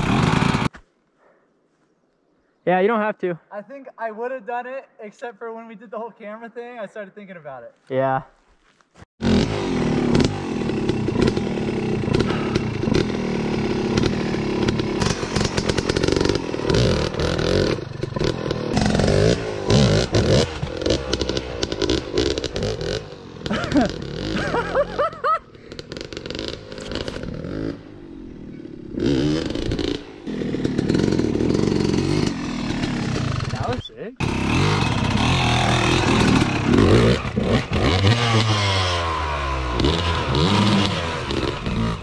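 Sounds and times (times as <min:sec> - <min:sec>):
dirt bike engine revving: 0:00.0 - 0:00.7, 0:09.2 - 0:42.0.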